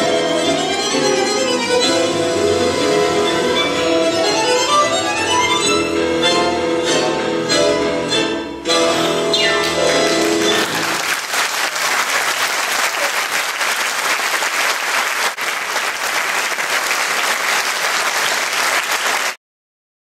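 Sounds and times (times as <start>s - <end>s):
tango music: 0.0s - 11.1s
audience applauding: 9.6s - 19.4s.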